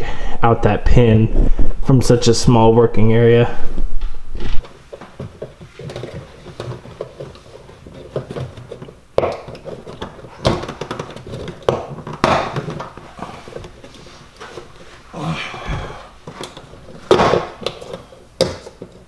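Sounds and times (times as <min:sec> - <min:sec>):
scraping rustles: 0:04.1 - 0:19.0
sharp knocks: 0:09.2 - 0:13.0.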